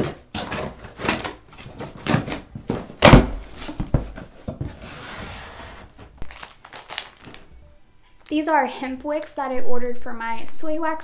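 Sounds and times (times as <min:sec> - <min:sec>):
cardboard flaps scraping and knocking: 0:00.0 - 0:06.2.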